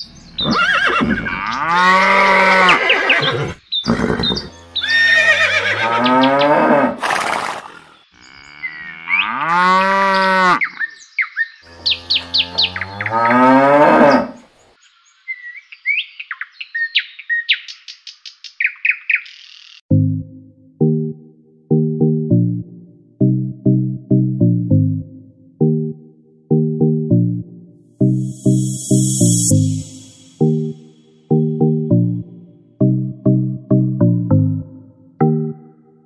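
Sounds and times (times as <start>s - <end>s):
birds chirping: 0.0s - 6.8s, 10.4s - 19.8s
cows mooing: 0.8s - 7.1s, 7.8s - 10.8s, 11.7s - 14.4s.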